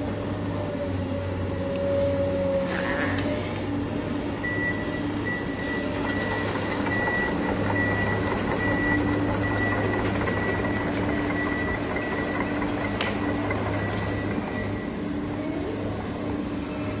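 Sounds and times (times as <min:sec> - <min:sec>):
toy electric motors humming: 0:02.6 - 0:03.7.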